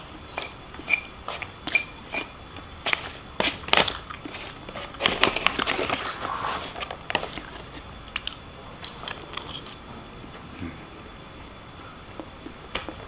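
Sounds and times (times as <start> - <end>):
crinkling: 2.8 - 10.4
chewing food: 2.9 - 6.0.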